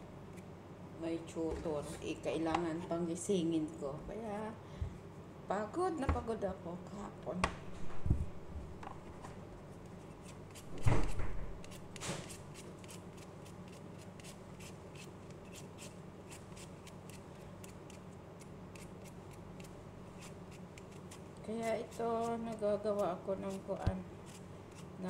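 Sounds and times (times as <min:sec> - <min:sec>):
peeler scraping potato skin: 0:11.6 - 0:25.0.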